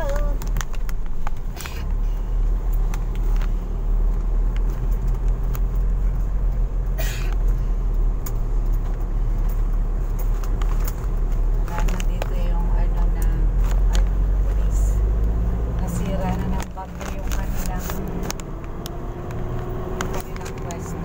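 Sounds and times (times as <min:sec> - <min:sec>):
car engine and road noise: 0:00.0 - 0:21.0
small clicks and rattles: 0:15.8 - 0:21.0.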